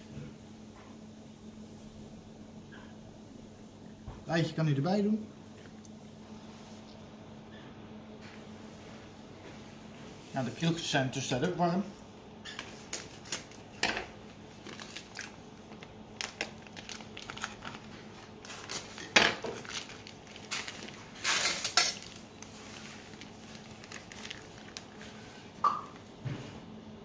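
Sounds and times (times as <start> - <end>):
plastic bag rustling: 12.6 - 26.7.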